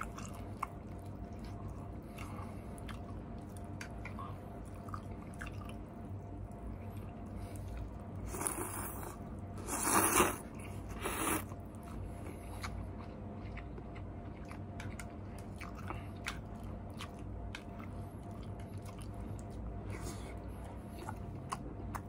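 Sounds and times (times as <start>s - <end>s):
chewing with wet mouth clicks: 0.0s - 10.3s, 11.3s - 22.0s
noodles slurping: 8.3s - 11.5s.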